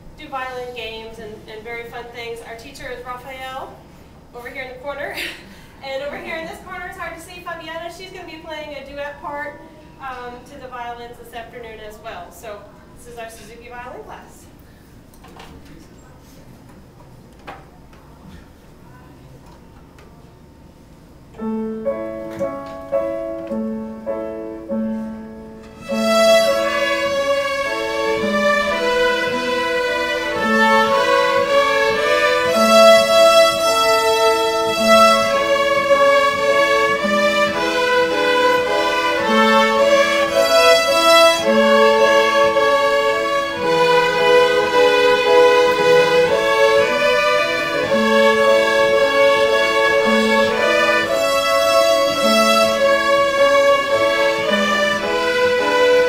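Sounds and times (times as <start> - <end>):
piano accompaniment: 21.2 - 56.0
children's violins playing: 22.4 - 56.0.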